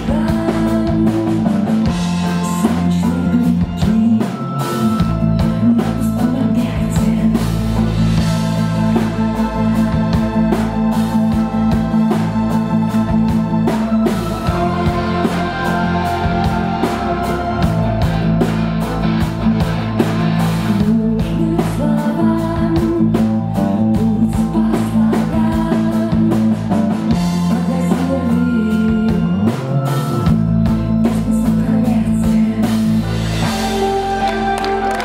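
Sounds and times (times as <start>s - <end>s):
woman singing: 0.0s - 9.8s, 20.7s - 30.2s, 31.0s - 35.0s
live rock band playing: 0.0s - 35.0s
steady drum beat: 0.0s - 35.0s
string section: 7.7s - 21.0s, 33.1s - 35.0s.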